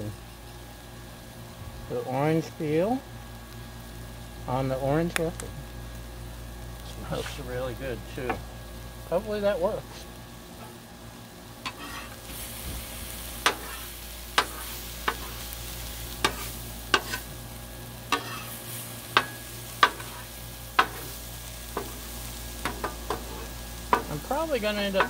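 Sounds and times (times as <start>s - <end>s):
food sizzling on a griddle: 0.0s - 25.0s
metal spatula scraping griddle: 11.6s - 12.8s, 13.4s - 15.4s, 16.2s - 17.4s, 18.1s - 21.2s, 22.6s - 25.0s.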